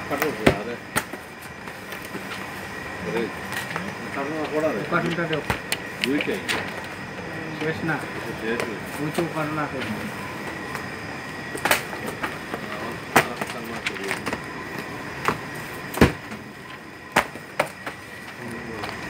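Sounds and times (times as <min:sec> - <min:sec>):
workshop room noise: 0:00.0 - 0:19.0.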